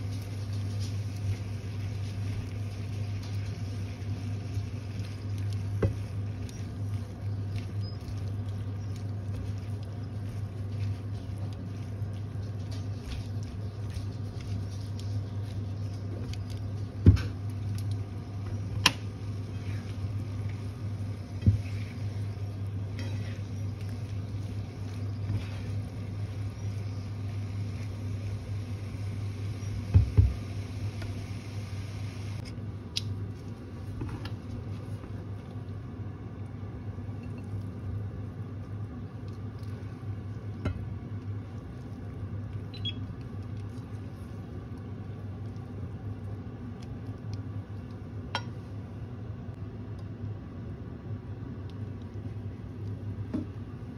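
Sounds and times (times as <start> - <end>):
stir fry sizzling in pan: 0.0 - 32.5
steady low hum: 0.0 - 53.9.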